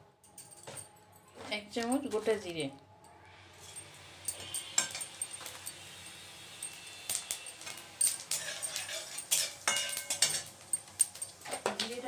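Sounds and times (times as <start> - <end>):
seeds sizzling in hot oil: 3.4 - 12.0.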